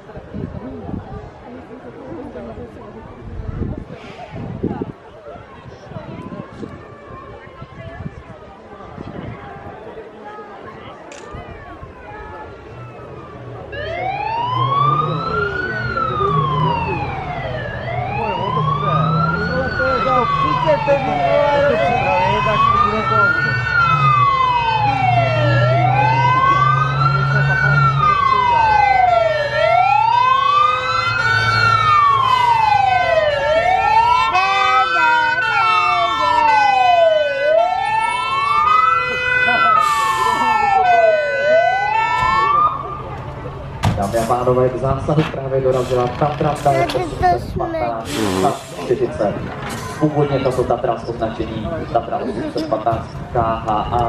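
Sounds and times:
fire engine siren wailing: 0:11.8 - 0:52.7
stepped siren tones: 0:12.8 - 0:43.3.

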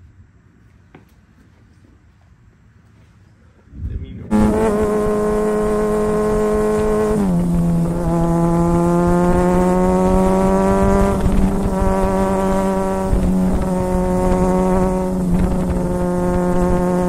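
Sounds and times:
motorcycle engine at high revs: 0:04.3 - 0:17.0.

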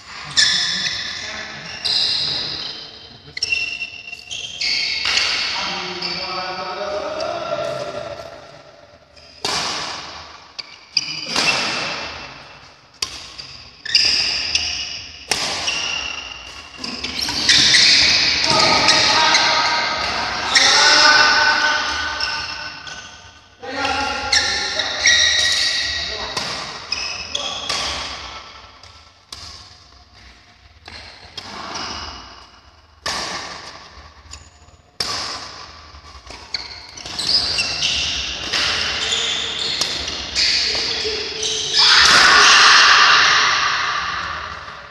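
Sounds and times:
shoe squeaks: 0:00.2 - 0:06.4, 0:10.6 - 0:11.8, 0:13.3 - 0:28.4, 0:36.3 - 0:42.9
rackets striking shuttlecock: 0:04.9 - 0:05.6, 0:09.2 - 0:12.2, 0:12.9 - 0:19.1, 0:25.4 - 0:39.0
racket striking shuttlecock: 0:09.4 - 0:10.4, 0:13.0 - 0:16.6, 0:33.0 - 0:38.9.

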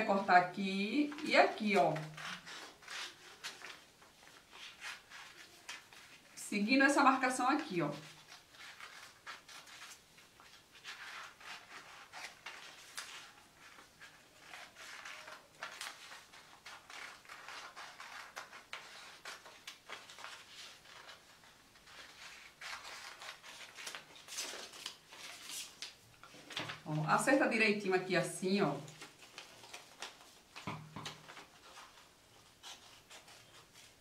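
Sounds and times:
paper rustling: 0:00.9 - 0:06.4, 0:07.0 - 0:27.8, 0:28.4 - 0:34.0
scissors snipping paper: 0:10.9 - 0:20.4.

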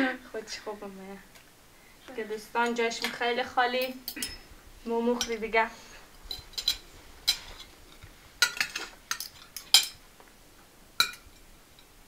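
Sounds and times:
cutlery clinking on plates: 0:03.8 - 0:04.5, 0:06.3 - 0:07.7, 0:08.4 - 0:10.0, 0:11.0 - 0:11.5.

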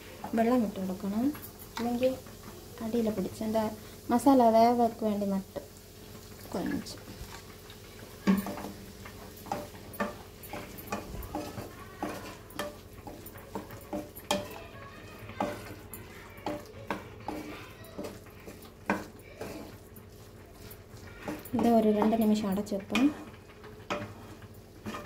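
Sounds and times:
wooden spatula scraping a pan: 0:06.3 - 0:25.0.

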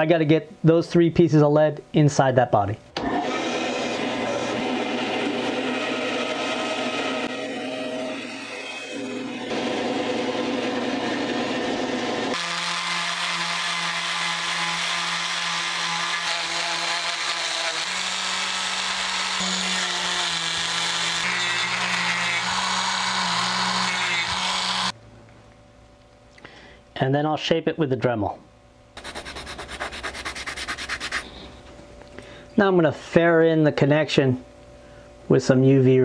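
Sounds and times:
band saw humming: 0:03.0 - 0:25.0
rotary tool grinding wood: 0:12.3 - 0:25.0.

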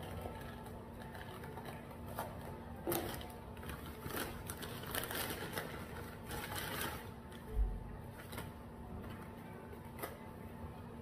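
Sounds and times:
food packaging rustling: 0:00.0 - 0:07.5.

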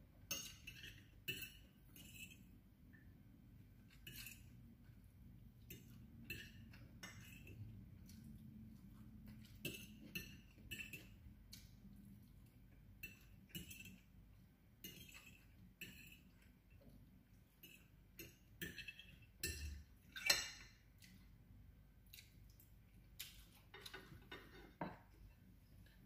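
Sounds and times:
fork clinking on ceramic plate: 0:00.3 - 0:02.5, 0:05.7 - 0:07.6, 0:09.5 - 0:11.2, 0:13.0 - 0:14.1, 0:14.8 - 0:16.3, 0:17.6 - 0:20.8.

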